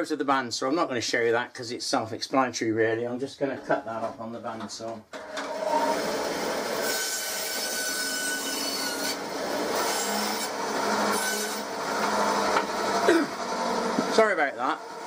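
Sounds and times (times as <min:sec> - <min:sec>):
bandsaw cutting wood: 0:05.2 - 0:15.0.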